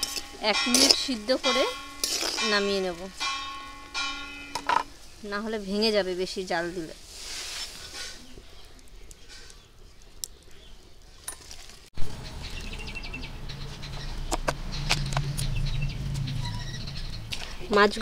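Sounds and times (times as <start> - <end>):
birds chirping: 0.0 - 6.9, 7.7 - 11.3, 12.0 - 18.0.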